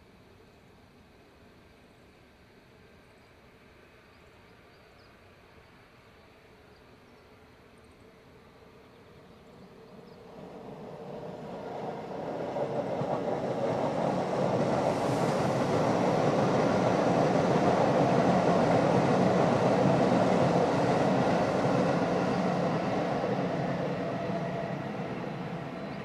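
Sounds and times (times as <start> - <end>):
jet engines at taxi power: 9.9 - 26.0.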